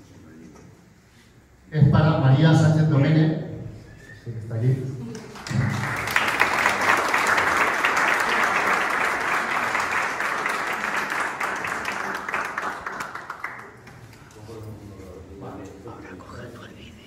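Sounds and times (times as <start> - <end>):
small audience clapping: 5.0 - 14.5.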